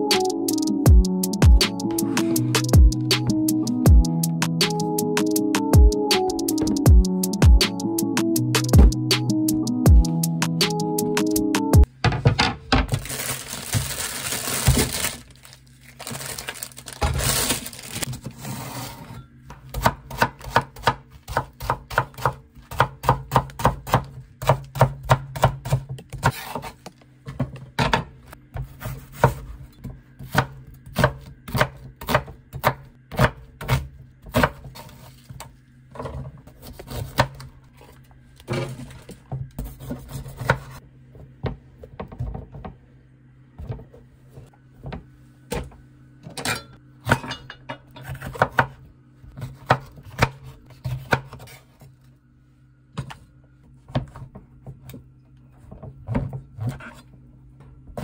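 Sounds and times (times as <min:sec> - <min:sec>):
knife chopping on cutting board: 0:19.7 - 0:26.8, 0:27.9 - 0:29.5, 0:30.2 - 0:35.1, 0:39.6 - 0:40.8, 0:48.0 - 0:48.8, 0:49.4 - 0:51.6.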